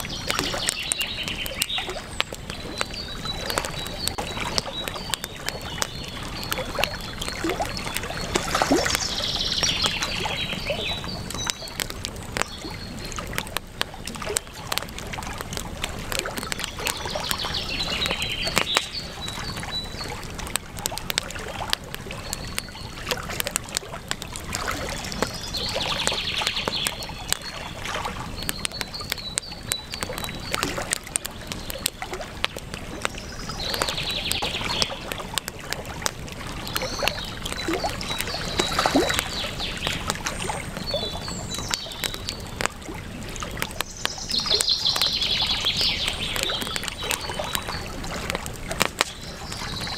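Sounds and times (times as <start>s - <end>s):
river water rushing: 0.0s - 12.4s
bird chirps: 0.0s - 13.3s, 16.6s - 20.2s, 24.9s - 32.0s, 36.6s - 42.7s, 43.8s - 47.9s
bird singing: 0.0s - 13.3s, 16.6s - 20.3s, 22.2s - 23.0s, 24.8s - 32.1s, 33.0s - 35.5s, 36.6s - 42.7s, 43.8s - 48.0s, 49.0s - 49.9s
campfire crackling and popping: 0.0s - 49.9s.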